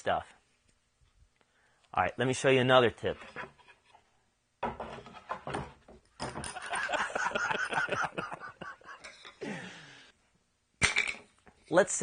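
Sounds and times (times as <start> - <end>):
man laughing: 6.5 - 9.7.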